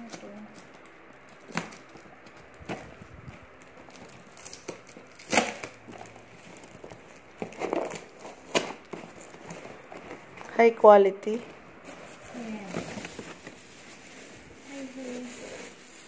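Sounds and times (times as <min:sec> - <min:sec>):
packing tape tearing: 0:00.0 - 0:03.0, 0:03.6 - 0:10.5
cardboard rustling and scraping: 0:01.4 - 0:16.0.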